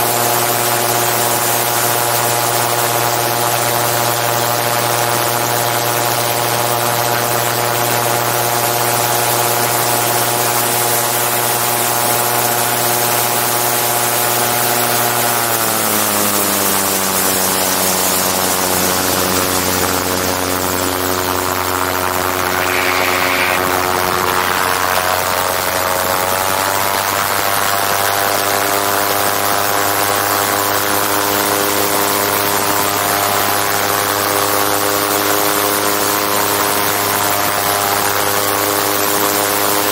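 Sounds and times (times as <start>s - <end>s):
engine and propeller running: 15.2s - 38.0s
wind hiss: 22.4s - 25.7s.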